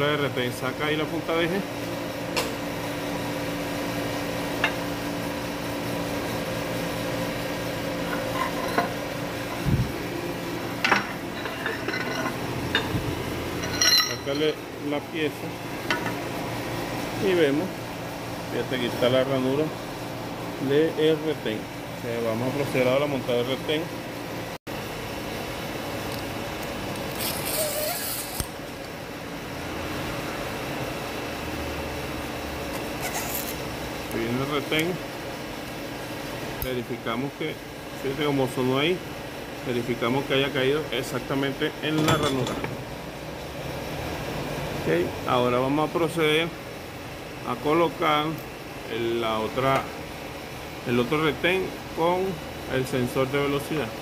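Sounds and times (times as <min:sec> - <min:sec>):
steady machine hum: 0:00.0 - 0:27.5, 0:28.2 - 0:54.0
metallic clinks and knocks: 0:13.6 - 0:14.4.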